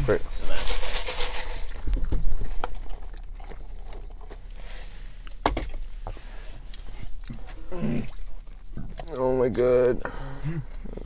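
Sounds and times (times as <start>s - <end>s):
rustling: 0.0s - 9.2s
chewing and biting: 1.7s - 5.9s, 6.5s - 9.3s.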